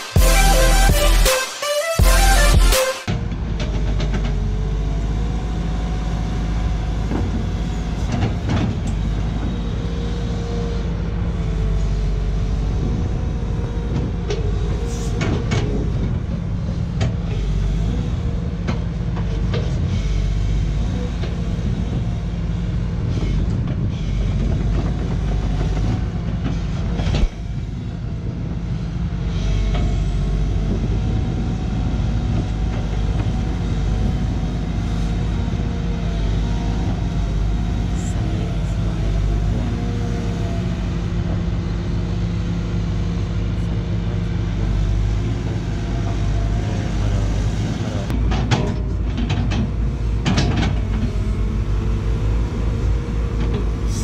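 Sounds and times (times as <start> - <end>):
excavator diesel engine running: 0.0 - 54.0
metallic knocks and clanks: 48.2 - 50.9.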